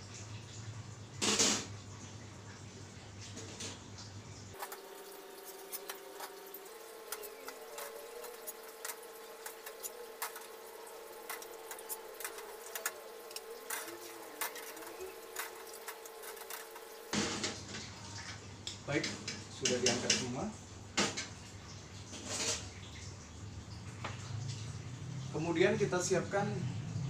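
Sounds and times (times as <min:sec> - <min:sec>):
faint steady hum: 0:00.0 - 0:19.8.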